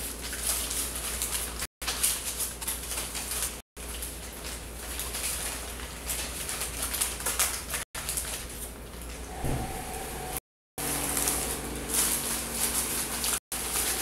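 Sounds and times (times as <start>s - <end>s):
paper rustling and crinkling: 0.0s - 9.3s, 10.8s - 14.0s
low hum: 9.2s - 10.4s.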